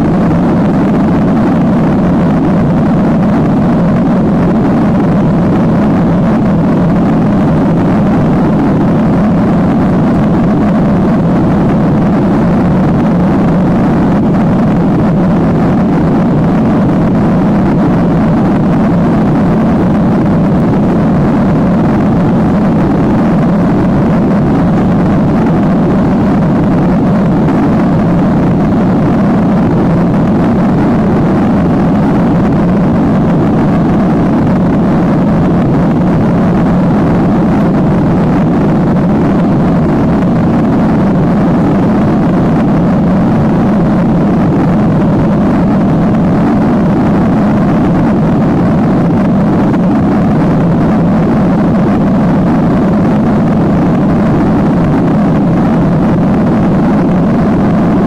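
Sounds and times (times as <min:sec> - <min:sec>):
jet engine cabin drone: 0:00.0 - 0:58.0.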